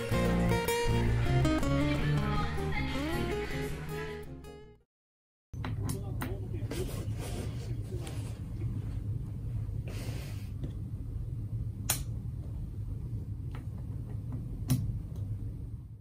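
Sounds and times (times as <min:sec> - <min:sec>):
low hum of room tone: 0:05.6 - 0:16.0.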